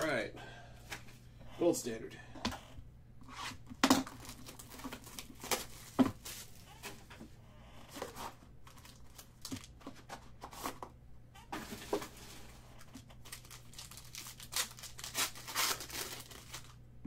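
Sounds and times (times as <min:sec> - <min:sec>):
foil pack crinkling: 0:03.9 - 0:06.7, 0:08.0 - 0:10.8, 0:11.6 - 0:16.8.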